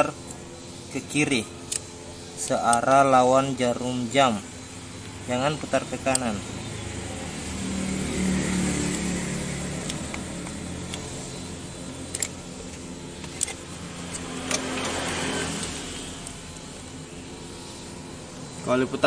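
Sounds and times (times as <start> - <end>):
screwdriver metallic clicks: 1.7 - 1.9, 9.8 - 11.2, 11.9 - 16.4
low engine hum: 5.0 - 19.0.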